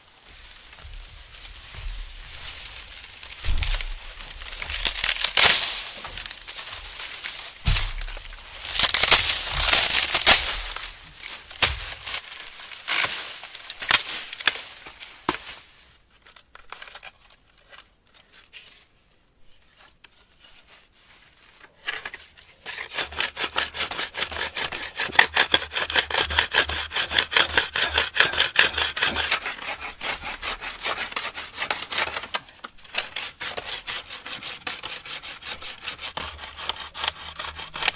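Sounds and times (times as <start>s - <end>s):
dry palm fronds crackling: 0.0s - 17.8s
palm stem scraping on rock: 0.3s - 14.6s, 21.5s - 37.9s.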